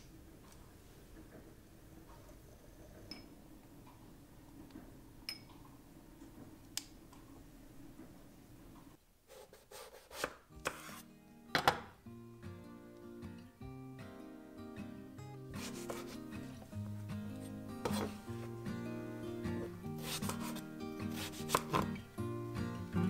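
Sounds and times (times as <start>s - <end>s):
faint room hum: 0.0s - 23.0s
knife slicing eggplant: 9.3s - 11.0s, 15.6s - 16.3s, 17.4s - 18.2s, 19.6s - 22.0s
gentle music: 10.5s - 23.0s.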